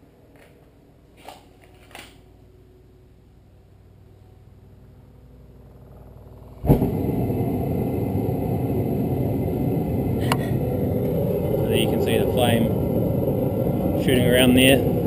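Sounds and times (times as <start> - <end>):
propane burner roaring: 3.6 - 15.0
gas igniting whoomp: 6.5 - 15.0
gas hissing: 6.6 - 15.0.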